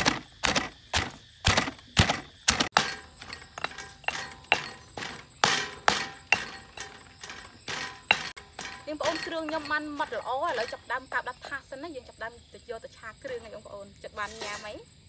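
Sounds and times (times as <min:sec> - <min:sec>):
stone pestle pounding in mortar: 0:00.0 - 0:10.9.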